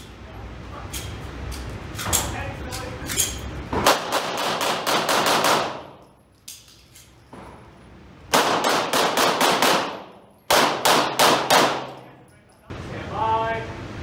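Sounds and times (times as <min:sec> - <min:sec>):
pistol shots ringing: 0:03.8 - 0:06.1, 0:08.3 - 0:12.1.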